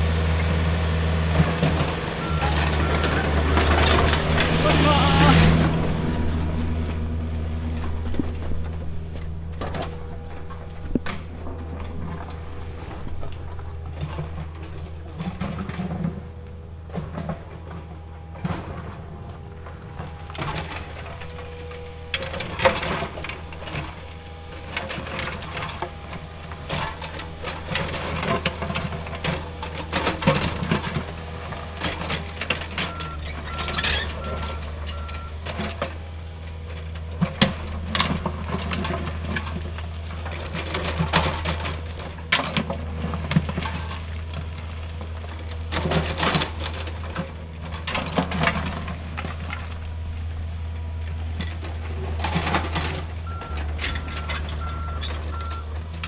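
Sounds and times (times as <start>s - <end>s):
diesel engine running: 0.0s - 56.0s
rock and soil clunks and scrapes: 1.2s - 56.0s
short beeps: 2.2s - 3.2s.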